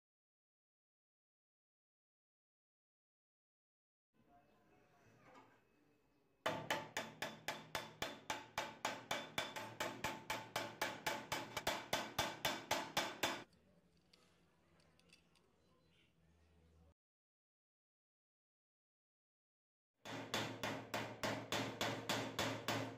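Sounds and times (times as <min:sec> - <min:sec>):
hammer striking metal: 0:06.5 - 0:13.4, 0:20.1 - 0:22.9.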